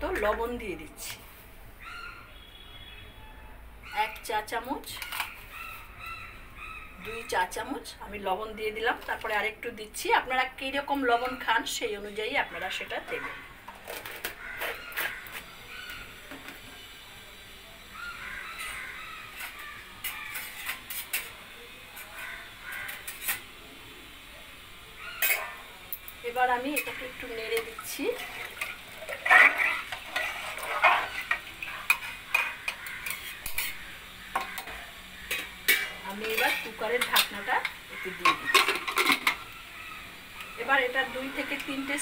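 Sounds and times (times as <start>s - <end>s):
crow cawing: 14.2s - 16.0s, 18.0s - 20.3s, 22.2s - 23.1s, 32.3s - 35.4s, 37.4s - 38.7s, 39.3s - 40.6s
ladle scraping and clinking pot: 19.3s - 21.4s, 27.6s - 33.8s, 34.4s - 39.5s.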